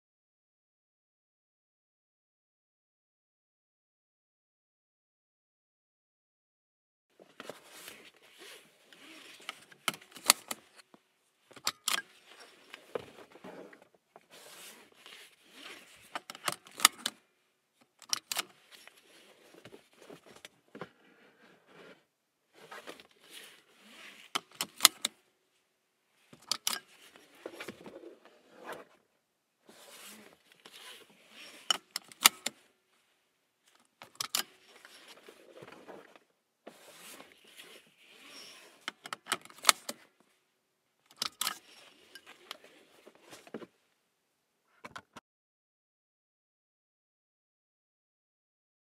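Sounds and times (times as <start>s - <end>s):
seat belt webbing rustling: 7.4s - 10.9s, 11.5s - 17.2s, 22.6s - 25.2s, 29.7s - 32.7s, 34.0s - 40.1s.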